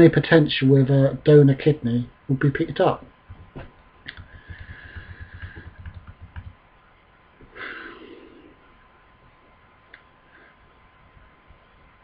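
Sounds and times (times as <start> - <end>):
man breathing: 4.2 - 5.8, 7.4 - 8.7.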